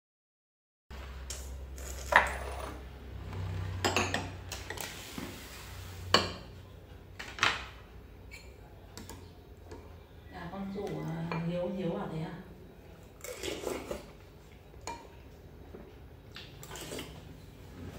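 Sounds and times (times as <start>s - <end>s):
utensils clinking on ceramic bowls: 1.8s - 2.8s, 3.8s - 4.9s.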